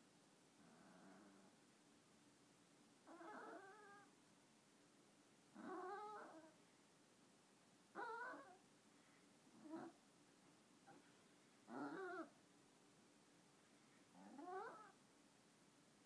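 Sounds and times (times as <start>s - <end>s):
dog whining: 3.1s - 4.1s, 5.6s - 6.5s, 8.0s - 8.6s, 11.7s - 12.3s, 14.2s - 15.0s.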